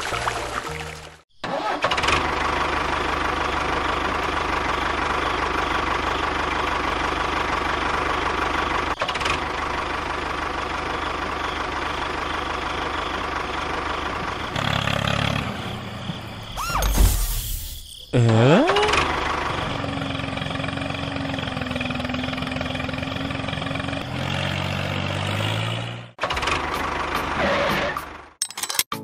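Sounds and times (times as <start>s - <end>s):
tractor engine idling with knock: 1.9s - 16.4s, 18.9s - 24.0s, 26.2s - 27.4s.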